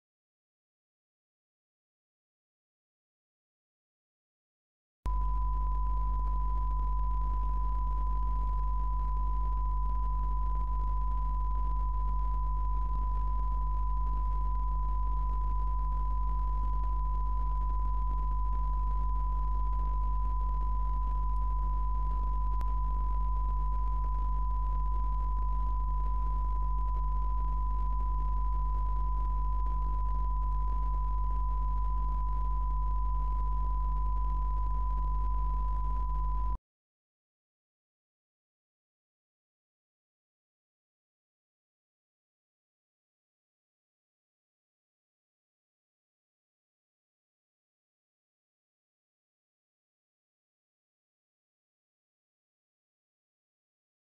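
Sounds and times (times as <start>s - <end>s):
low mains hum: 5.1s - 36.6s
steady pure reference tone: 5.1s - 36.6s.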